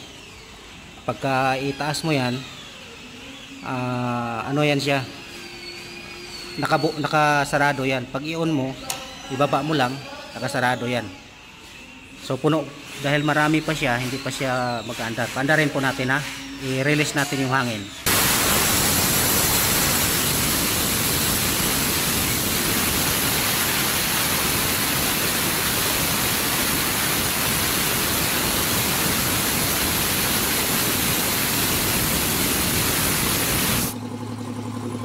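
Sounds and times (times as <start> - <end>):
compressed air hissing from valve: 18.0 - 34.0.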